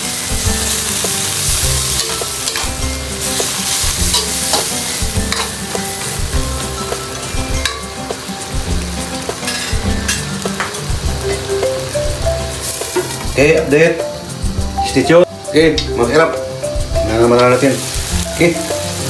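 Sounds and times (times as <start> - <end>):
utensil scraping a pan: 0.0 - 11.5
meat sizzling in a pan: 0.0 - 19.0.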